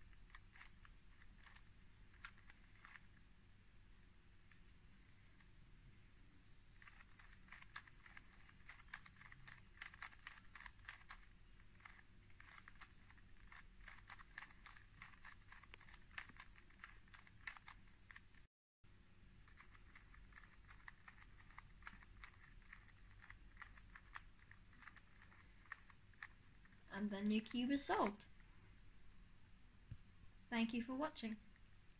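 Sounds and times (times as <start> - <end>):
plastic puzzle cube clicking: 0.2 - 3.1, 6.8 - 18.2, 19.5 - 26.4.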